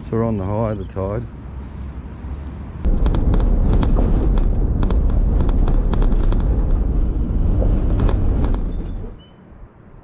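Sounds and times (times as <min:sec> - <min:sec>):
vehicle rumbling over dirt track: 0:02.8 - 0:09.2.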